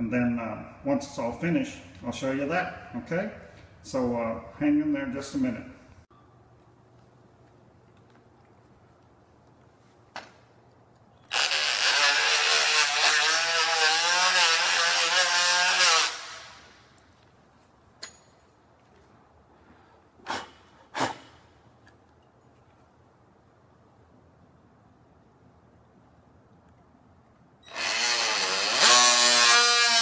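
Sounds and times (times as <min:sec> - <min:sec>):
oscillating multi-tool cutting wood: 0:11.3 - 0:16.9, 0:27.6 - 0:30.0.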